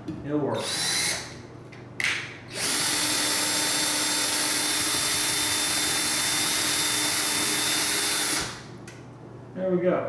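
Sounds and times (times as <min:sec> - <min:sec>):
cordless drill driving a screw: 0:00.6 - 0:01.3, 0:02.5 - 0:08.7.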